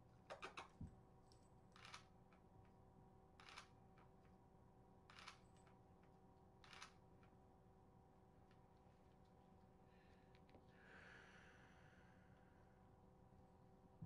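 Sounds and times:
camera shutter clacking: 0:05.1 - 0:05.4.

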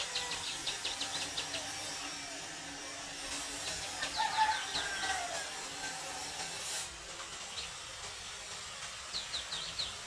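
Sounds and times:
bird chirps: 0:00.0 - 0:01.7, 0:09.1 - 0:10.0
electric train hissing on rails: 0:00.0 - 0:10.0.

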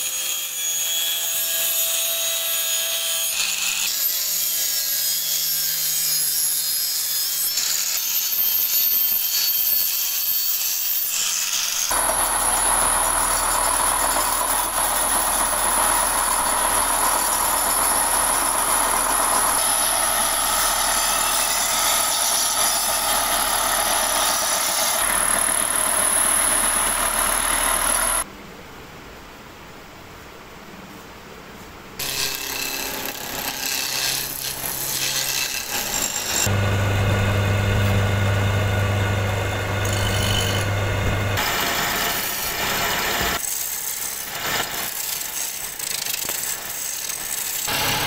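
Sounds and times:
angle grinder grinding steel: 0:03.3 - 0:28.2, 0:32.0 - 0:48.0
belt sander grinding metal: 0:10.0 - 0:28.2, 0:32.0 - 0:48.0.

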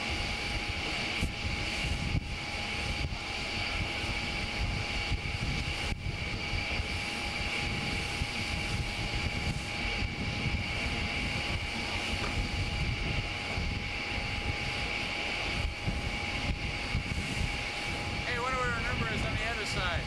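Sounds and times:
steady high whine: 0:00.0 - 0:20.0
wind rushing: 0:01.2 - 0:20.0
ship machinery rumble: 0:09.4 - 0:20.0.

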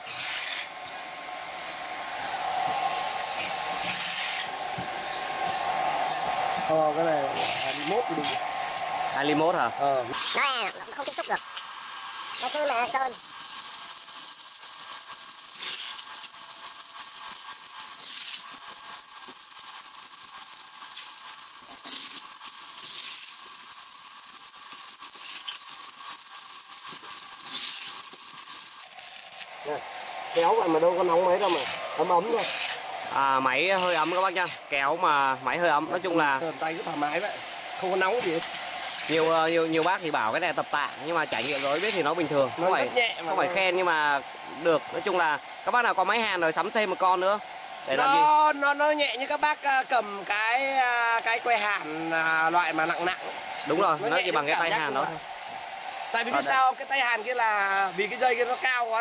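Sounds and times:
welding arc crackling: 0:01.6 - 0:59.0
cooling fan whirring: 0:04.4 - 0:28.9
spatter pops: 0:10.1 - 0:29.5.

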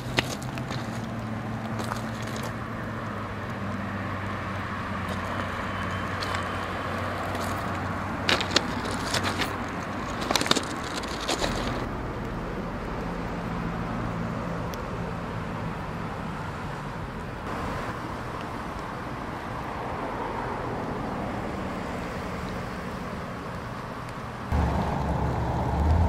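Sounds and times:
footsteps on track ballast: 0:00.0 - 0:03.6, 0:05.0 - 0:11.9
low motor hum: 0:24.5 - 0:26.0.

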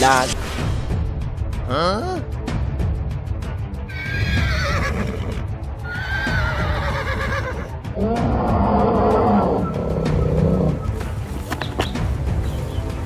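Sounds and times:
background music: 0:00.0 - 0:13.0
low long animal call: 0:05.9 - 0:10.9
high wavering animal calls: 0:05.9 - 0:11.0.

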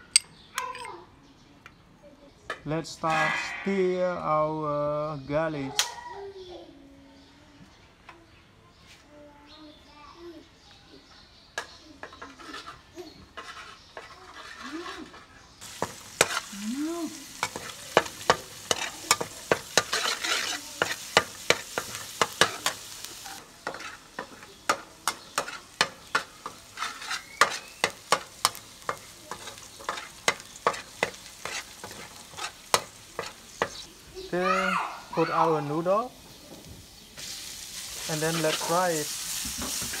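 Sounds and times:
metal spatula scraping a wok: 0:12.0 - 0:33.8, 0:37.3 - 0:40.0
garlic sizzling in hot oil: 0:15.6 - 0:40.0.

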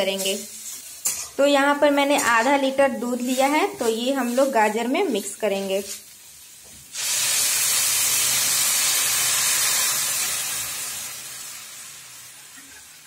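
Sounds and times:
milk hissing in hot pan: 0:03.2 - 0:13.0.

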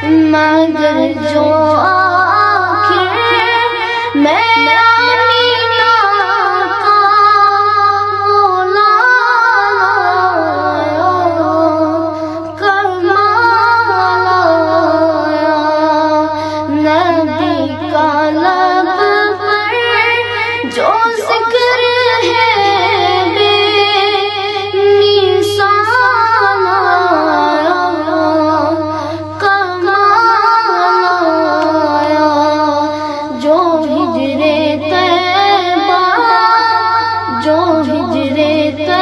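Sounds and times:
boy singing into microphone: 0:00.0 - 0:39.0
steady low hum: 0:00.0 - 0:39.0.

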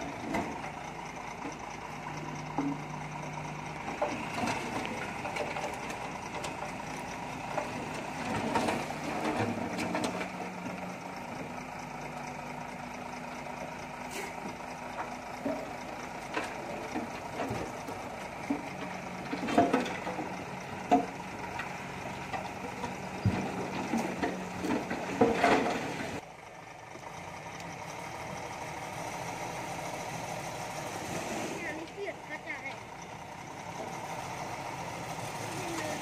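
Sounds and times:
soil and rocks dumping: 0:00.0 - 0:11.0, 0:14.0 - 0:26.2, 0:30.4 - 0:32.7
truck engine running: 0:00.0 - 0:36.0.

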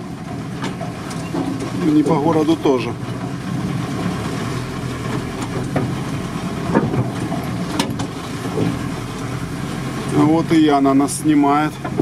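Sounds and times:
van engine hum: 0:00.0 - 0:12.0
knocks and rattles: 0:05.1 - 0:08.8.

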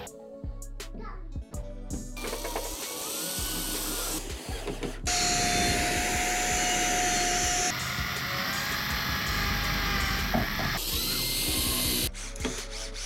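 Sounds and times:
electric drill whining: 0:02.2 - 0:12.1
router high whine: 0:05.1 - 0:12.1.

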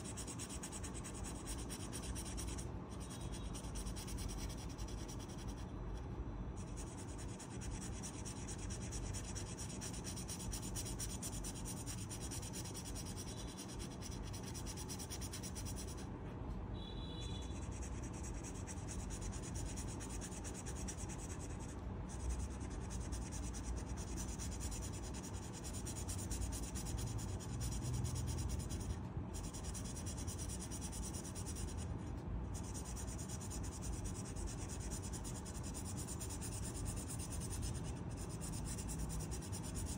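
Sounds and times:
pen rubbing on paper: 0:00.0 - 0:05.6, 0:06.6 - 0:16.0, 0:17.6 - 0:31.8, 0:32.5 - 0:39.9.

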